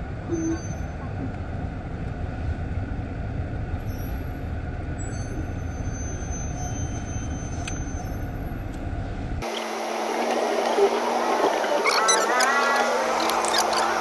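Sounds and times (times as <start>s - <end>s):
car engine and tyres rumbling: 0.0s - 14.0s.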